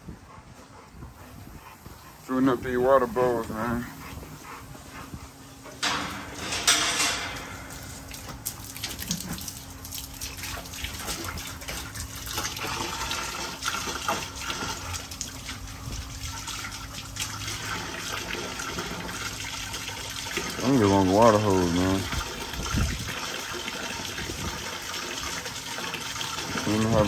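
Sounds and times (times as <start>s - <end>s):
hose water splashing into bucket: 5.8s - 27.0s.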